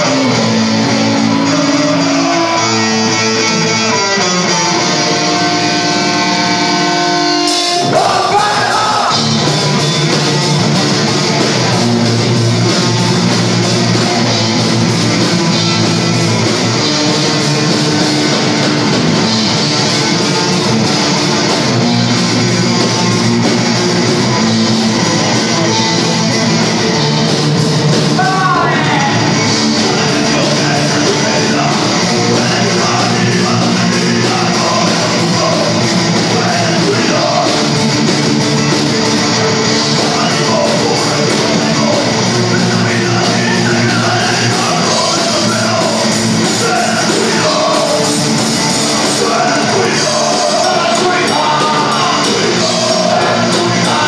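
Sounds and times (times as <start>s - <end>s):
shouted vocals: 0.0s - 3.6s, 7.8s - 9.3s, 28.2s - 37.7s, 40.0s - 54.0s
drums: 0.0s - 54.0s
electric guitars: 0.0s - 54.0s.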